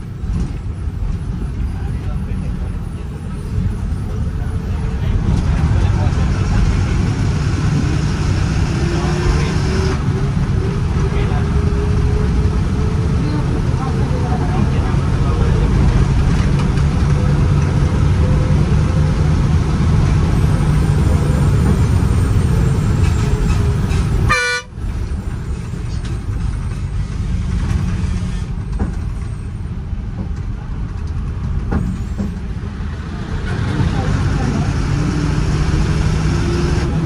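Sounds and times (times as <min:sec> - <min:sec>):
bus diesel engine running: 0:00.0 - 0:37.0
bus horn toot: 0:24.2 - 0:24.8.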